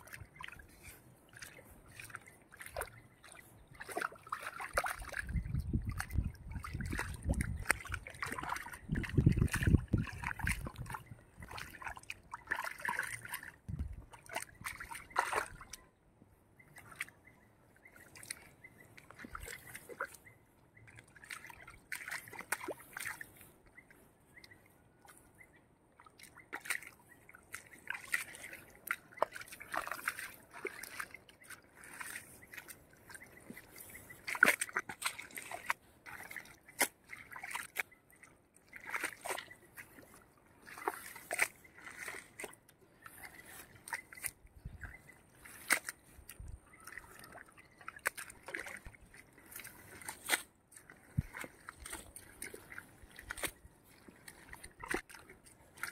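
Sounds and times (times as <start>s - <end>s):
water trickling: 0.0s - 15.8s
water and mud sloshing: 0.0s - 55.9s.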